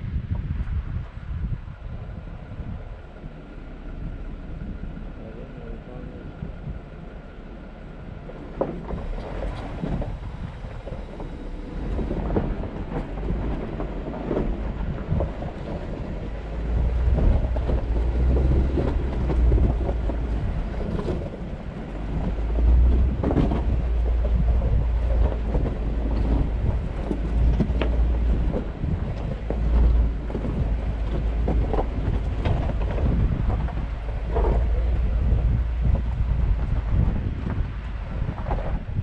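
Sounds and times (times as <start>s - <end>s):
vehicle engine rumble: 0.0s - 39.0s
tyres crunching over rocks: 7.8s - 39.0s.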